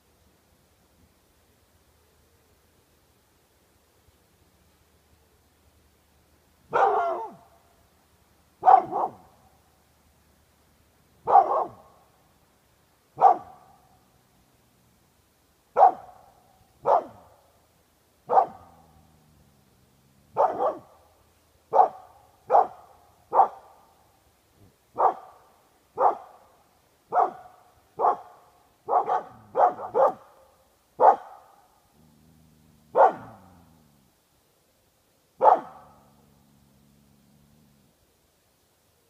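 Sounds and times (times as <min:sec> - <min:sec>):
dog barking: 0:06.7 - 0:07.5, 0:08.6 - 0:09.3, 0:11.2 - 0:12.0, 0:13.2 - 0:13.9, 0:15.8 - 0:17.3, 0:18.3 - 0:18.8, 0:20.3 - 0:21.0, 0:21.7 - 0:23.7, 0:25.0 - 0:26.4, 0:27.1 - 0:31.7, 0:32.9 - 0:33.5, 0:35.4 - 0:36.2.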